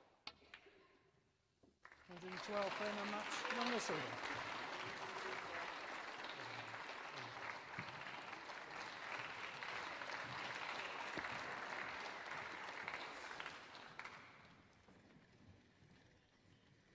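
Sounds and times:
audience applauding: 0:01.8 - 0:15.4.

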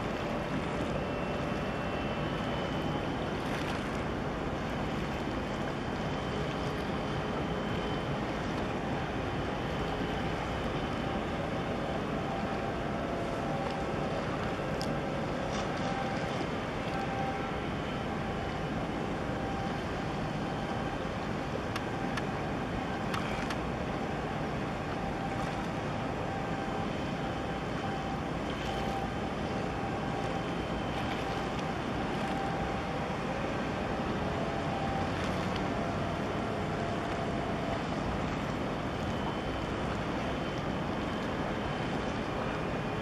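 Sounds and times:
boat engine drone: 0:00.0 - 0:43.0
faint steady whine: 0:00.0 - 0:43.0.

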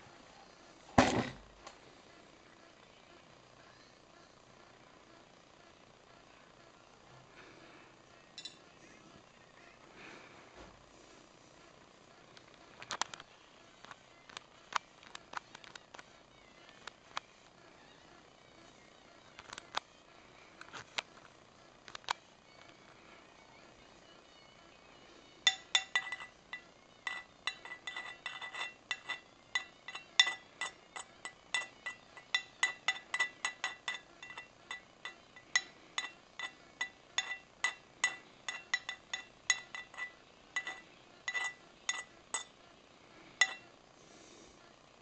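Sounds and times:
metal rod clinking on ceramic bowl: 0:08.4 - 0:08.6, 0:25.5 - 0:42.5, 0:43.4 - 0:43.7.

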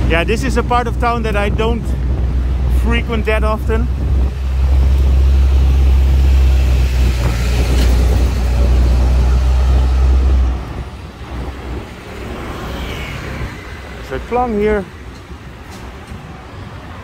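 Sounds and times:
loud low rumble: 0:00.0 - 0:12.0
road traffic noise: 0:00.0 - 0:17.0.

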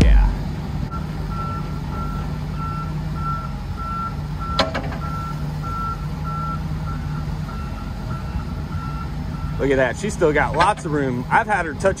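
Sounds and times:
heavy machine engine running: 0:00.0 - 0:12.0
reversing alarm beeping: 0:00.9 - 0:09.6.

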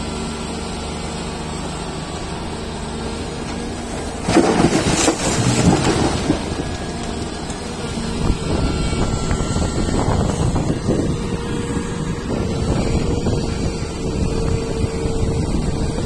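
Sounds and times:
excavator diesel engine running: 0:00.0 - 0:16.0
rumble of tumbling coal and rock: 0:03.1 - 0:09.5.

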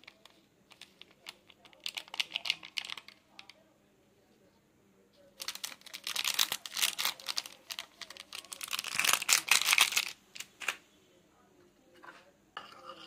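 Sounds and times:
foil sachet crinkling: 0:00.0 - 0:03.2, 0:05.4 - 0:10.5.

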